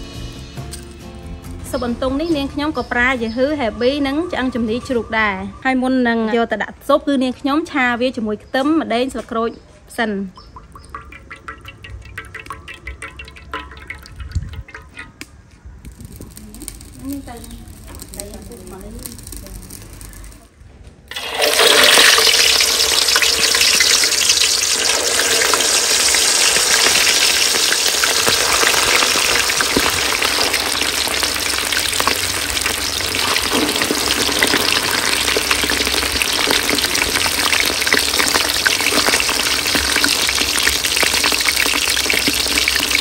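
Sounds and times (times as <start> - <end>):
food deep-frying in oil: 10.3 - 20.5, 21.1 - 43.0.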